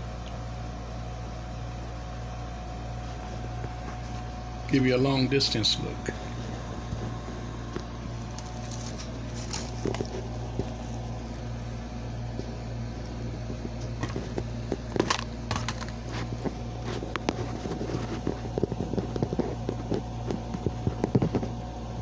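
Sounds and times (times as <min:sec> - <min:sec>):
low mechanical hum: 0:00.0 - 0:22.0
small clicks and crackles: 0:06.8 - 0:11.4, 0:13.4 - 0:21.7.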